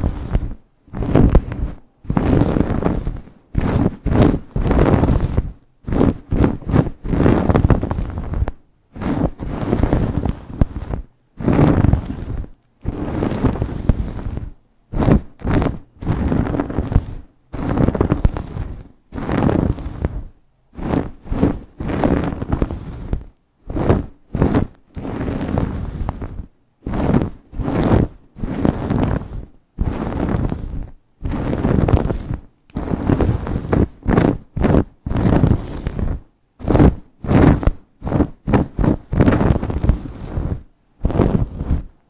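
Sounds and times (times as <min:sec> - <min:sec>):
fingernails scratching through hair: 0:00.0 - 0:42.0.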